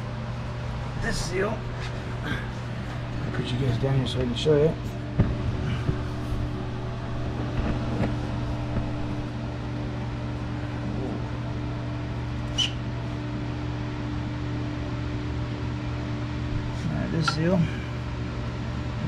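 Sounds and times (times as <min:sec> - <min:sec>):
low mechanical hum: 0:00.0 - 0:19.0
sharp squeak: 0:12.5 - 0:12.8.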